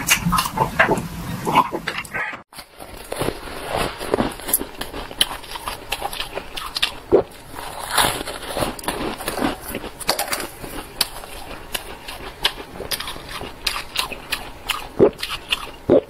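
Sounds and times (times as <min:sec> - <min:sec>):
crunchy biting and chewing: 0:02.6 - 0:16.0.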